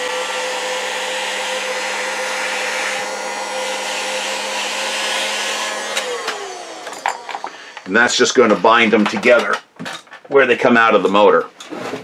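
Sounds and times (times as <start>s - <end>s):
heat gun blower rush: 0.0s - 9.5s.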